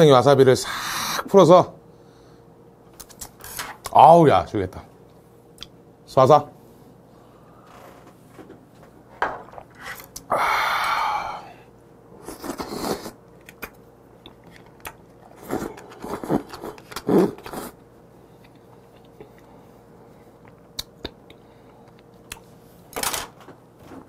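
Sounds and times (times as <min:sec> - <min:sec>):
breathy exhale: 0:10.3 - 0:11.7.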